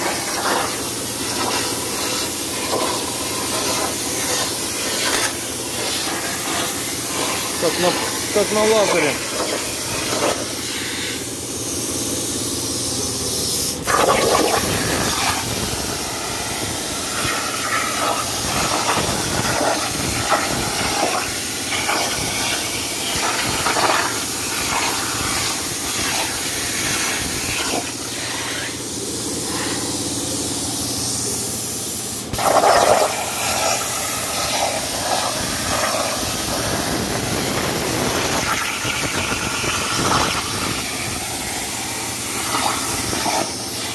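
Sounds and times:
plasma arc hissing: 0.0 - 43.9
torch piercing crack: 0.1 - 10.4, 13.8 - 16.2, 17.1 - 27.9, 32.3 - 43.5.

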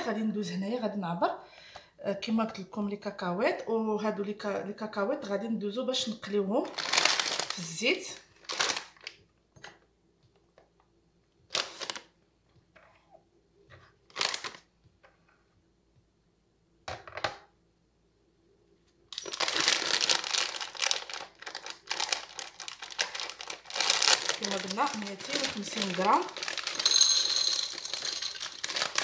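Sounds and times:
plastic bag crinkling: 6.6 - 9.2, 11.5 - 12.1, 14.0 - 14.7, 19.1 - 29.0.

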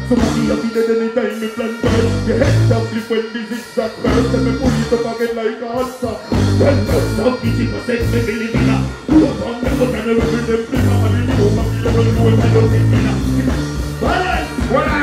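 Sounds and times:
dancehall music with heavy bass: 0.0 - 15.0
performer's voice on microphone: 0.0 - 15.0.

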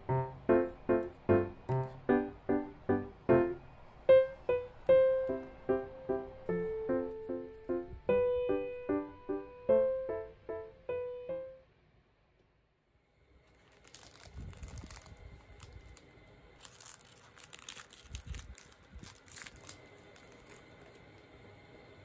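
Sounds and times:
piano-like tune: 0.0 - 11.8
wrappers crinkling and rustling: 13.4 - 21.2.

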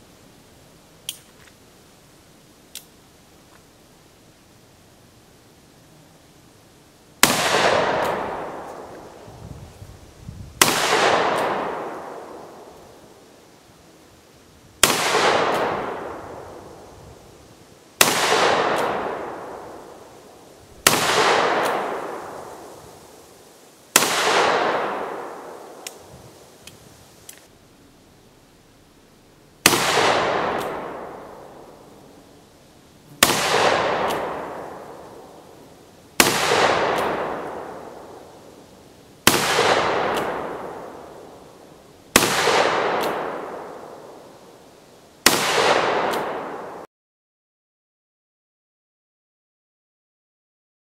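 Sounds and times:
revolver gunshots with echo: 7.2 - 8.7, 10.6 - 12.6, 14.8 - 16.4, 18.0 - 19.9, 20.8 - 22.6, 24.0 - 25.8, 29.6 - 31.6, 33.2 - 35.4, 36.2 - 38.2, 39.2 - 41.3, 42.2 - 44.0, 45.2 - 46.8.

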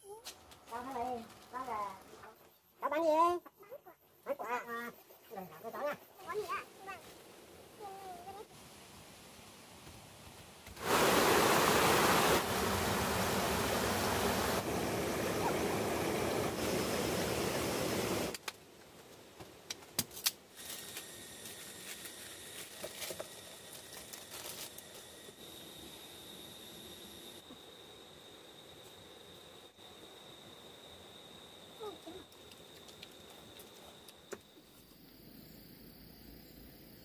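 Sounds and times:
faint insects buzzing: 0.0 - 19.7, 20.4 - 37.0
stream water rushing: 10.8 - 18.3.

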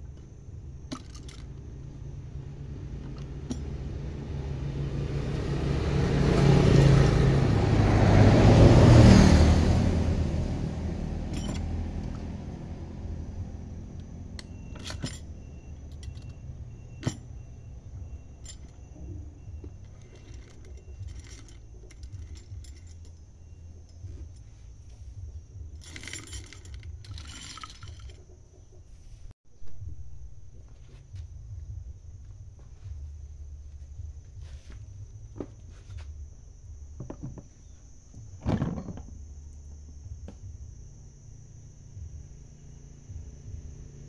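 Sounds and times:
metal parts clicking and clinking: 0.1 - 2.0, 3.0 - 3.9, 11.2 - 12.3, 14.0 - 17.6, 18.2 - 24.7, 25.7 - 28.5.

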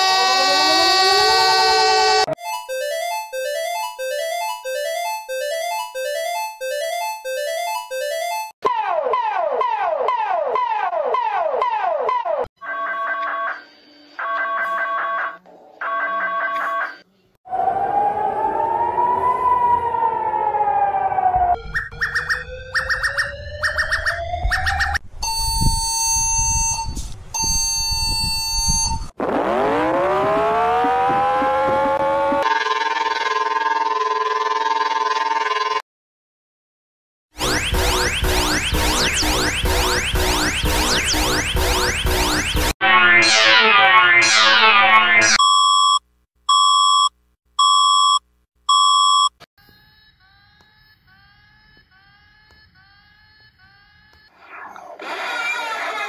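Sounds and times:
siren winding up: 0.0 - 2.4, 16.8 - 35.8, 37.4 - 45.4
alarm beeps: 21.6 - 29.1, 37.4 - 49.3
faint alarm rising chirps: 21.6 - 29.1
loud buzzy electronic beeps: 37.4 - 45.9.

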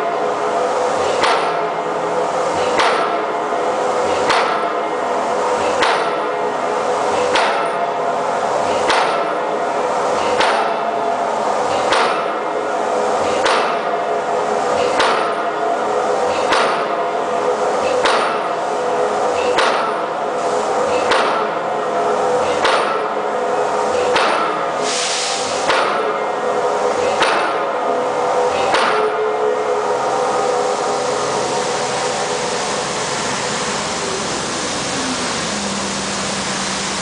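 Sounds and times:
impact hammer striking steel pipe: 1.1 - 1.8, 2.6 - 3.3, 4.1 - 4.8, 5.7 - 6.3, 7.2 - 7.8, 8.8 - 9.4, 10.2 - 10.9, 11.7 - 12.5, 13.2 - 13.9, 14.8 - 15.6, 16.3 - 17.0, 17.8 - 18.5, 19.4 - 20.1, 21.0 - 21.6, 22.4 - 23.2, 24.0 - 26.2, 27.1 - 27.7, 28.6 - 29.4.

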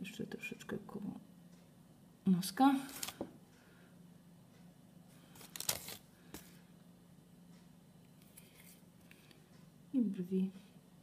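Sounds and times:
low steady hum: 0.0 - 11.0
handling rustle: 5.3 - 6.5.

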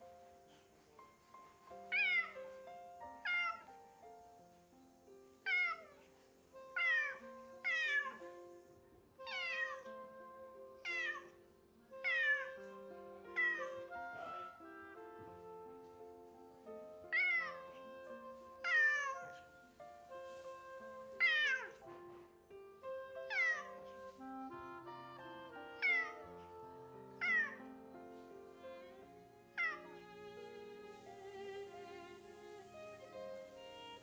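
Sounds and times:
soft background music: 0.0 - 34.0
cat meowing: 1.9 - 2.4, 3.2 - 3.7, 5.4 - 8.3, 9.2 - 10.0, 10.8 - 11.3, 12.0 - 14.6, 17.1 - 19.5, 21.1 - 21.8, 23.1 - 23.9, 25.6 - 27.6, 29.5 - 30.4.

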